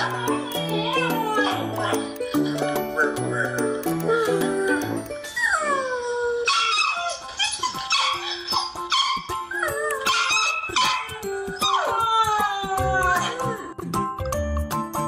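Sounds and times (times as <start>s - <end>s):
background music: 0.0s - 15.0s
dog whining and yipping: 5.2s - 12.2s.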